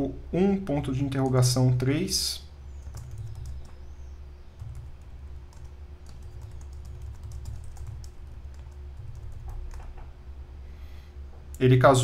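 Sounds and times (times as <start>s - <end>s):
low steady hum: 0.0s - 12.0s
computer keyboard typing: 2.8s - 4.0s, 4.6s - 10.1s.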